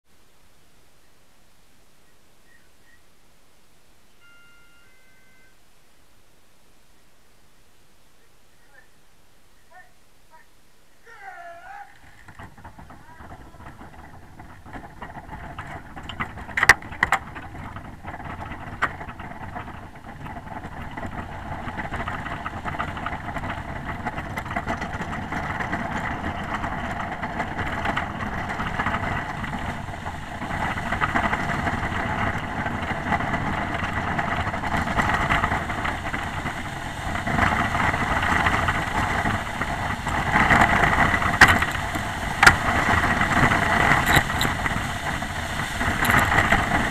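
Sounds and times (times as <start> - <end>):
sled runners hissing on ice: 25.1 - 46.9.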